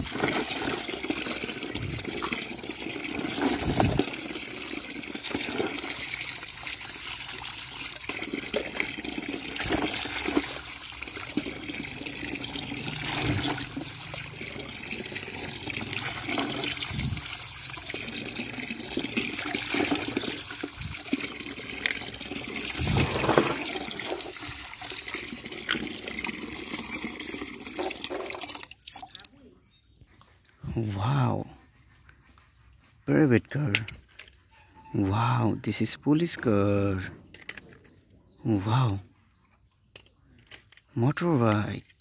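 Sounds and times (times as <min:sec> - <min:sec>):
toys splashing in water: 0:00.0 - 0:29.3
water pouring into a tub: 0:00.0 - 0:29.3.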